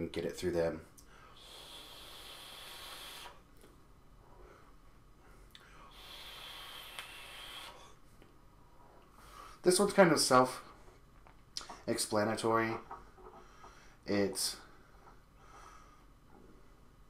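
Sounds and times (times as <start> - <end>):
e-cigarette draw hiss: 1.4 - 3.4, 5.9 - 7.9.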